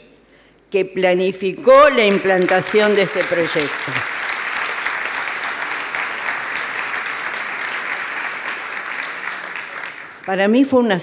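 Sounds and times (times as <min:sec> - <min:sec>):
large audience applauding: 0:01.7 - 0:10.4.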